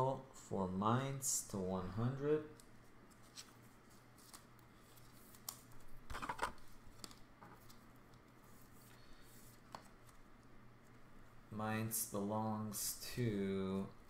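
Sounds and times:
trading cards rustling: 0:02.5 - 0:11.0.

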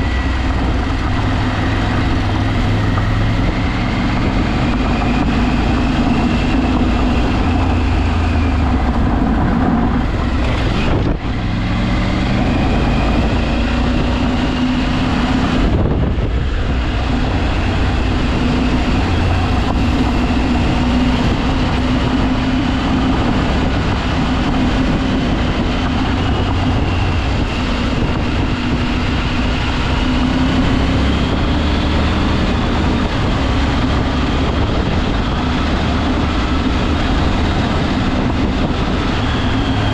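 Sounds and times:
vehicle engine running: 0:00.0 - 0:39.9.

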